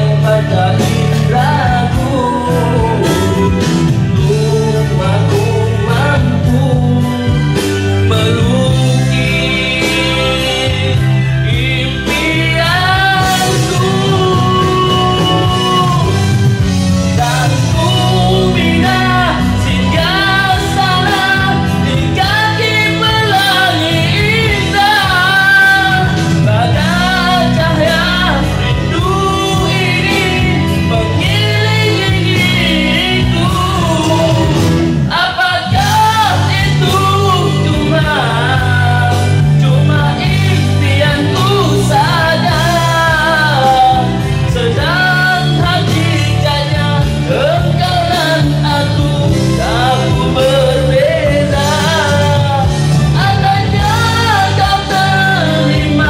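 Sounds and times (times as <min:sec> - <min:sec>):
man singing a ballad: 0:00.0 - 0:56.0
rock backing track: 0:00.0 - 0:56.0.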